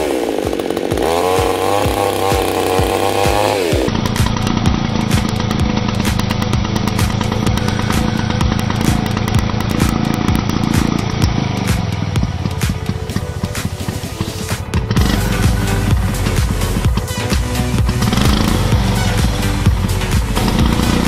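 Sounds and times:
chainsaw running: 0.0 - 21.0.

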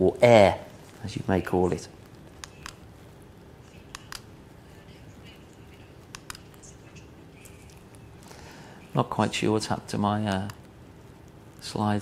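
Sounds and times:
remote button clicks: 2.4 - 2.8, 3.9 - 4.3, 6.0 - 6.6.

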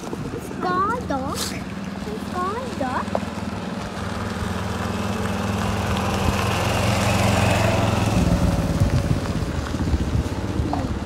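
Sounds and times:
small vehicle engine running: 0.0 - 11.0.

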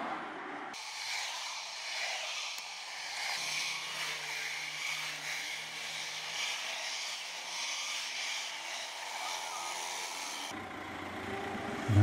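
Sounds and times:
cars driving past: 10.5 - 12.0
low engine hum: 10.6 - 12.0.

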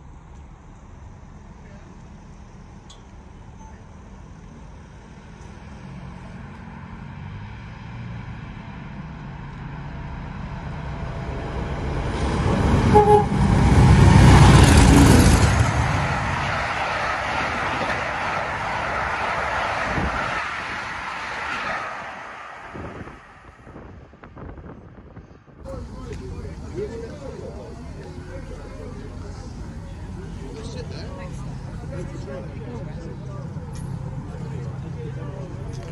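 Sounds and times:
diesel locomotive passing: 0.0 - 35.9
wheels rumbling on rails: 0.0 - 35.9
train horn: 12.8 - 13.5.

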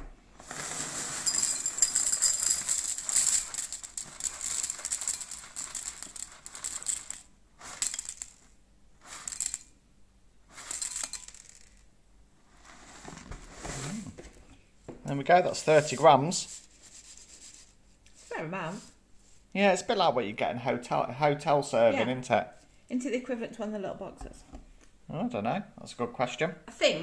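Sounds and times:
cereal box shaking: 0.4 - 9.6, 10.5 - 11.8
cereal pouring into bowl: 0.4 - 9.7, 10.5 - 11.9, 15.5 - 17.6.

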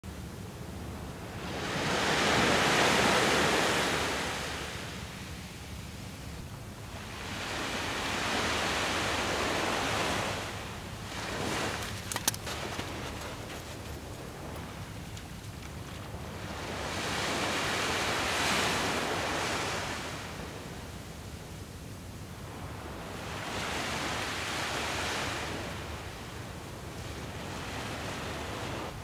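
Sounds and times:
waves breaking on beach: 1.2 - 5.6, 6.9 - 21.2, 22.4 - 29.0.

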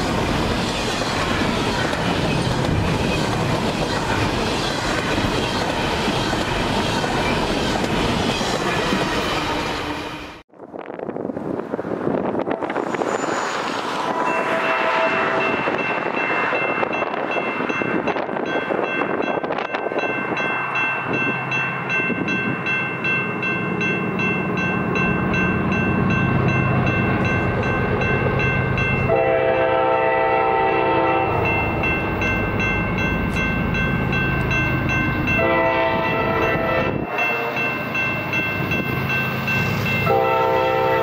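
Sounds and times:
crossing bell ringing: 13.0 - 41.0
locomotive air horn blasts: 14.0 - 15.8, 29.1 - 31.5, 35.4 - 37.7, 40.0 - 41.0.

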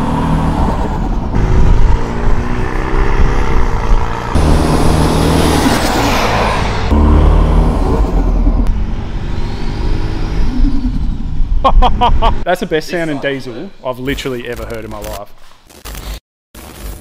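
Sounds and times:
diesel engine accelerating: 0.0 - 11.6.

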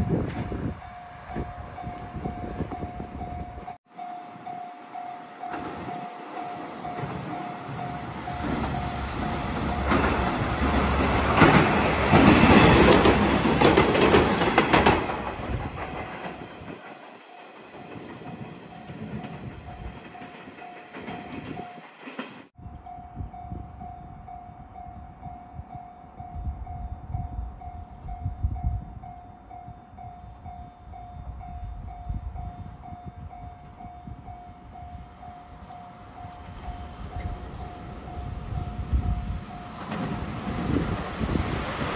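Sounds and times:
diesel railcar passing: 0.0 - 41.9
rail clatter: 5.4 - 22.5, 36.4 - 41.9.

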